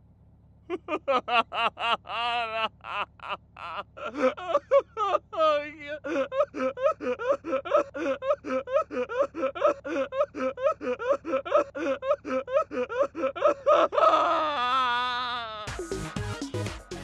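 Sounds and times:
person laughing: 0.7 - 16.7.

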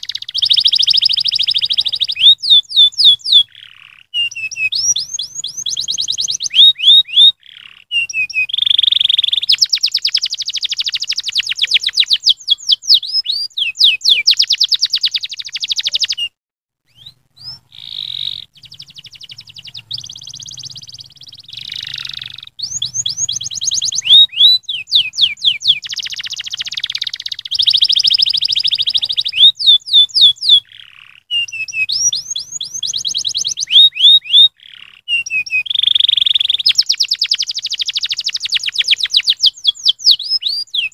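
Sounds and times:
canary singing trills: 0.0 - 40.9.

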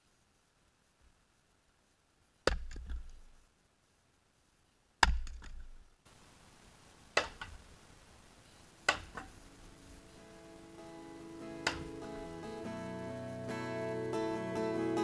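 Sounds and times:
small knocks: 2.4 - 3.3.

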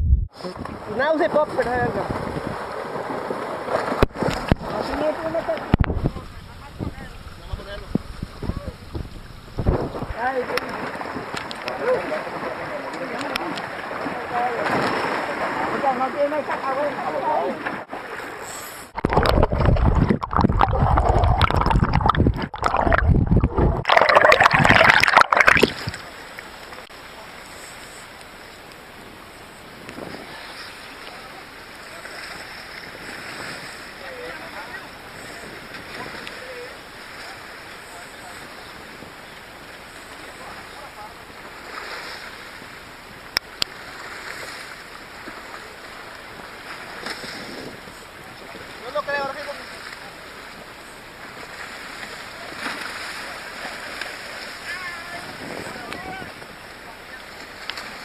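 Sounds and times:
water splashing and gurgling: 0.5 - 28.6, 29.5 - 58.0
rumbling wind buffeting: 5.8 - 10.2, 19.0 - 25.1.

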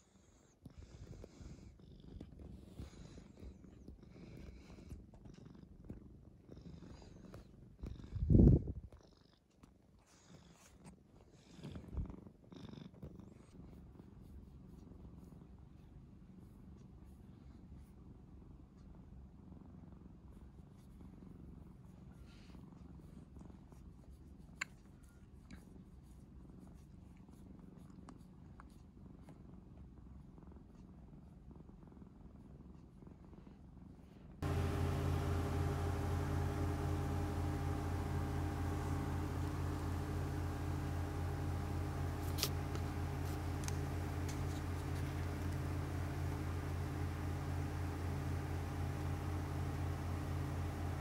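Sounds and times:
cat purring: 0.7 - 8.4, 25.6 - 51.0.

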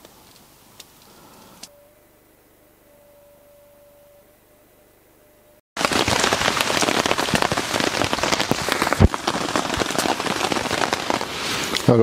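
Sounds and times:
rain on a tarp: 5.8 - 12.0.

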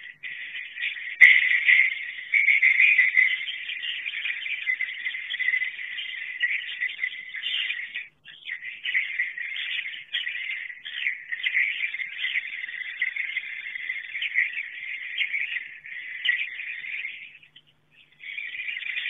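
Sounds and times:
swiftlets twittering: 0.0 - 19.0.

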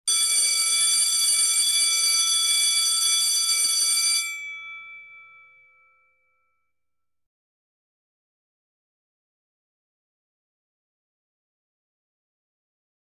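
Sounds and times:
electric school bell ringing: 0.1 - 6.6.

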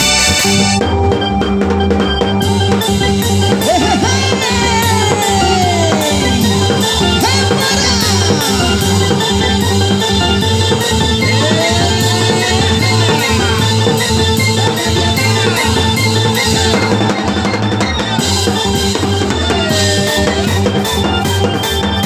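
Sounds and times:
gliding pitch-bent lead notes: 0.8 - 22.0
steady drum beat: 1.6 - 22.0
dance music melody: 3.6 - 18.9.

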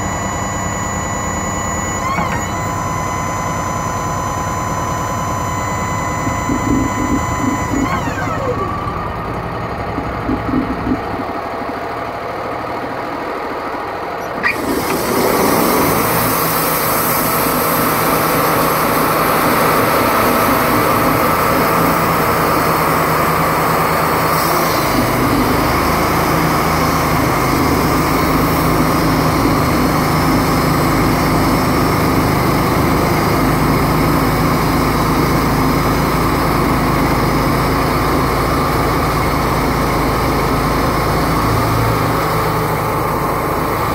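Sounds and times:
sawmill engine running: 0.0 - 43.9
band saw cutting log: 6.1 - 8.8, 14.3 - 31.8.

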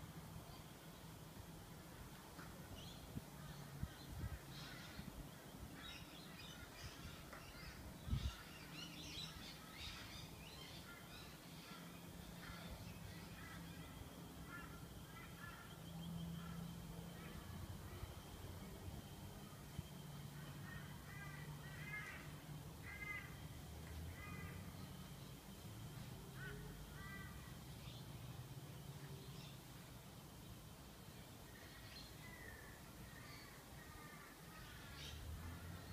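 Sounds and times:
faint low hum: 0.0 - 35.9
faint bird calls: 2.8 - 25.2, 26.0 - 28.0.

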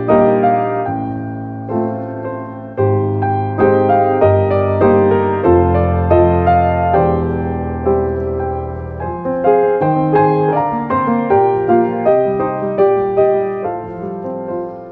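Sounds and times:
gentle piano melody: 0.0 - 14.9
low held piano bass notes: 0.0 - 14.9.

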